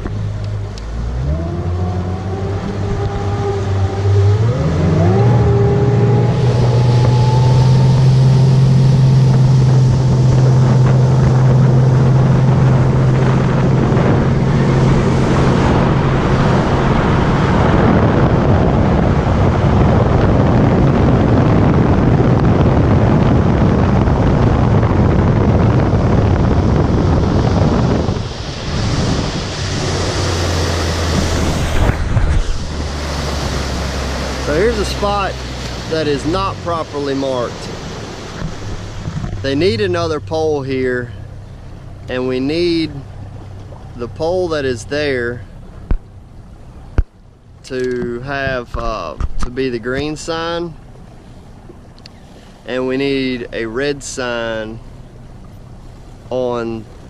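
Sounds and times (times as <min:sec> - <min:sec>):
outboard motor throttling up: 0:00.0 - 0:57.0
wind and water rushing: 0:00.0 - 0:57.0.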